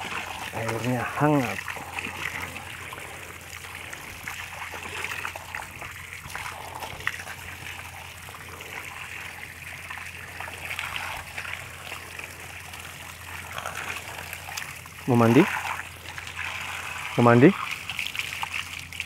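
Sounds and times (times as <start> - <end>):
water pouring into a tank: 0.0 - 19.0.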